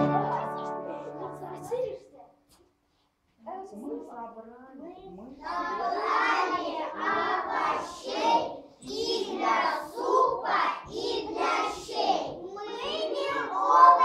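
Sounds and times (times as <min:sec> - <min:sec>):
children singing in chorus: 0:05.5 - 0:14.0.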